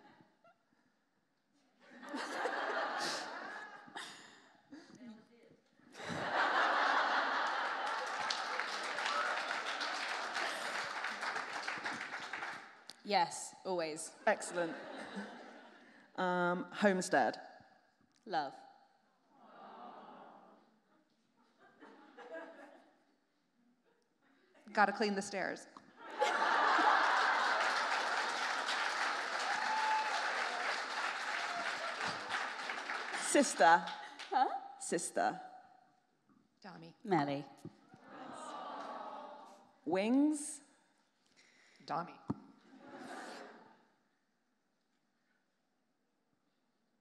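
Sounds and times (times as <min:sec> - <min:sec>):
audience laughing: 0:01.9 - 0:04.0, 0:06.0 - 0:11.5, 0:26.0 - 0:28.8, 0:38.0 - 0:39.6, 0:42.7 - 0:43.8
audience applauding: 0:06.7 - 0:12.8, 0:26.2 - 0:34.4.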